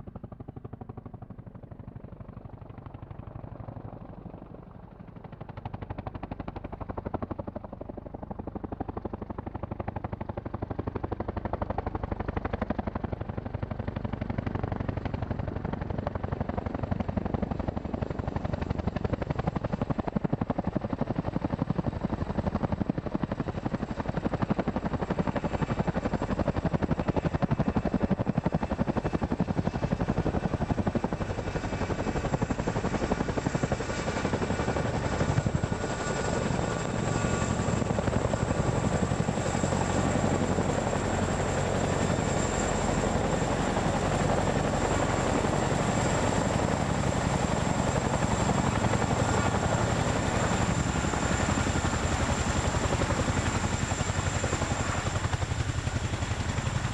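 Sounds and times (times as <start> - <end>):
helicopter rotor blades beating: 0.0 - 56.9.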